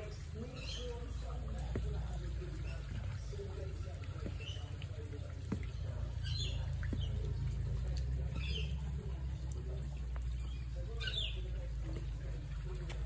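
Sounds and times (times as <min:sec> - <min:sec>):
bird chirps: 0:05.6 - 0:07.3, 0:08.2 - 0:09.1, 0:10.2 - 0:11.6.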